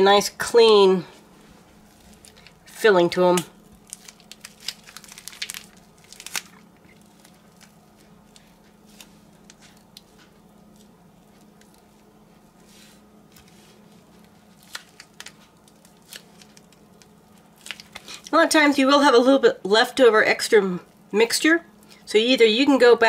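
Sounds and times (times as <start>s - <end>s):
faint steady hum: 0.0s - 23.0s
soft squishes: 1.1s - 2.8s, 3.6s - 18.3s
plastic bag crinkling: 1.7s - 18.4s.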